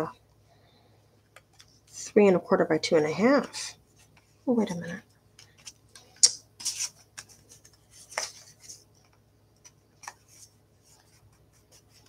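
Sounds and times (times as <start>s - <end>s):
paper rustling: 5.4s - 12.0s.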